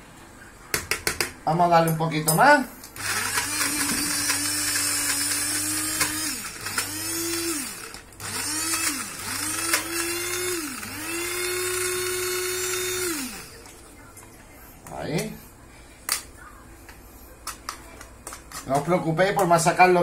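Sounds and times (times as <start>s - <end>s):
food chopper motor pulsing: 3.0s - 13.6s.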